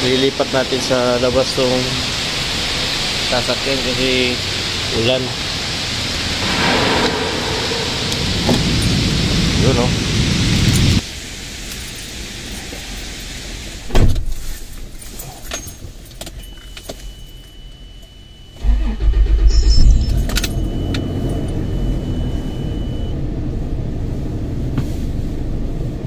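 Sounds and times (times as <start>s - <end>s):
car door thumping shut: 13.9s - 14.3s
car engine starting and idling: 18.6s - 25.9s.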